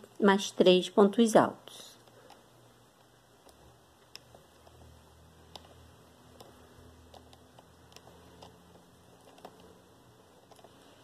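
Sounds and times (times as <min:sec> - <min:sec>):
crochet hook light ticks: 0:03.4 - 0:04.8, 0:05.4 - 0:09.8.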